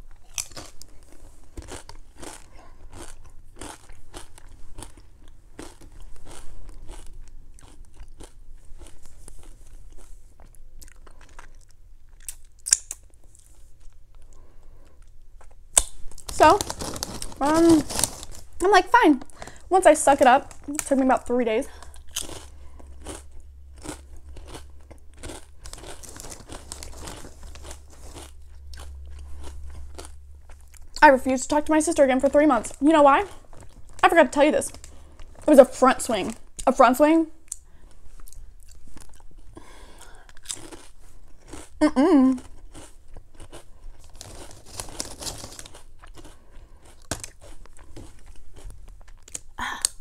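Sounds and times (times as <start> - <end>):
plastic chip bag crinkling: 0.0 - 10.0, 15.8 - 36.4, 42.7 - 49.5
crunching chips: 0.0 - 31.0, 32.2 - 36.2, 37.5 - 50.0.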